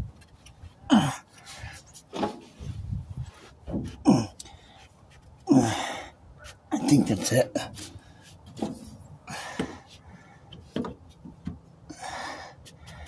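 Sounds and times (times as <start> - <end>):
man grunting with effort: 0.9 - 1.3, 4.0 - 4.4, 5.5 - 6.1.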